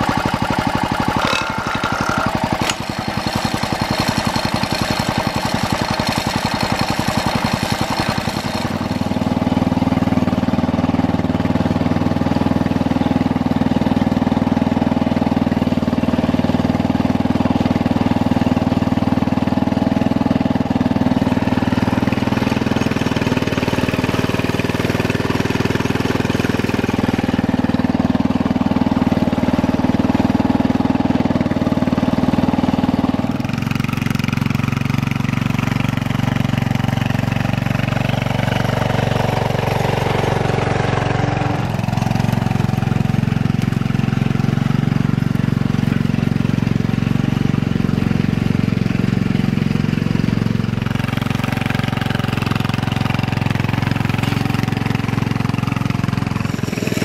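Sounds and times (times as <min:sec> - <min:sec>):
garden tractor engine running: 0:00.0 - 0:57.0.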